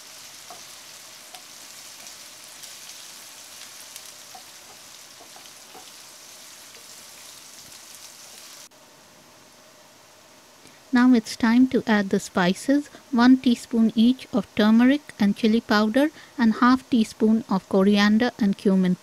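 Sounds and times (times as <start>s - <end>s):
food sizzling in oil: 0.0s - 8.7s
faint hiss: 0.0s - 19.0s.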